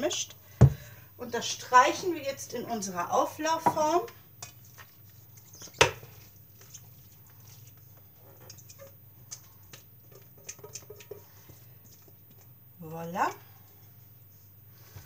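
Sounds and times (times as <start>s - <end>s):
spoon scraping metal bowl: 7.4s - 12.0s.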